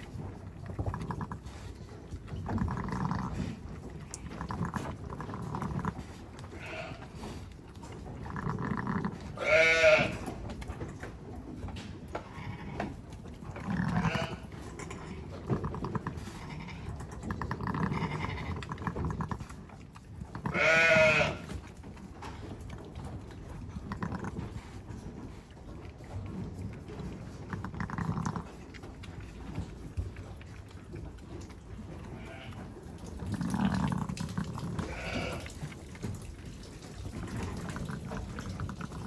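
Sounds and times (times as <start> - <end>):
sheep bleating: 5.6 - 7.2, 8.6 - 10.3, 13.7 - 14.5, 16.2 - 16.9, 17.6 - 18.7, 20.4 - 21.5, 32.2 - 32.6, 34.8 - 35.6.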